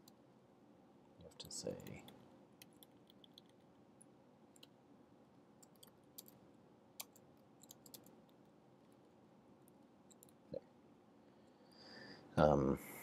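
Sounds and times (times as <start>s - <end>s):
keyboard typing: 1.2s - 3.8s, 5.6s - 6.4s, 7.0s - 10.4s.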